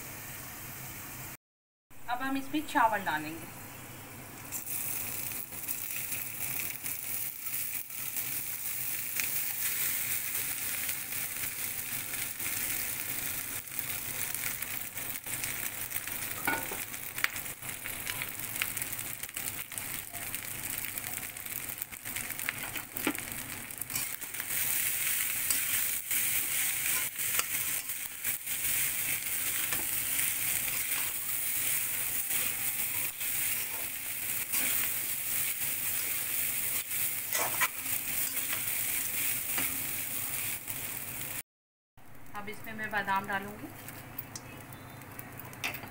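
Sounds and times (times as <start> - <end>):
rice sizzling in oil: 4.4 - 41.4
spatula scraping pan: 37.3 - 38.6.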